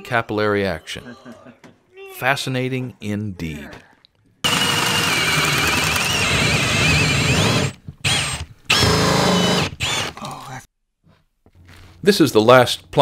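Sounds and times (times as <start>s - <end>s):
power drill cutting wood: 4.4s - 10.2s.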